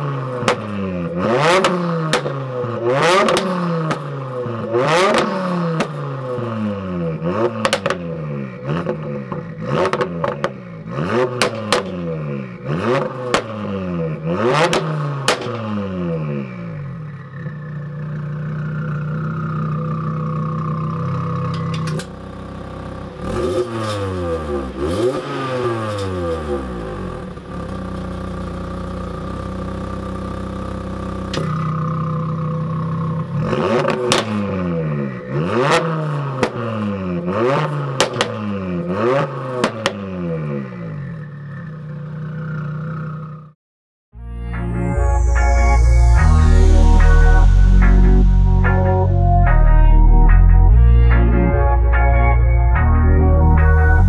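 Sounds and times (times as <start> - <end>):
car engine revving: 0.0 - 17.6, 21.3 - 28.0, 33.0 - 41.2.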